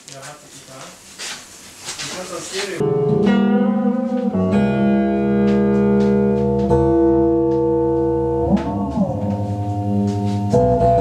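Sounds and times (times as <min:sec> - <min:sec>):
electric guitar sustained notes: 0:02.8 - 0:11.0.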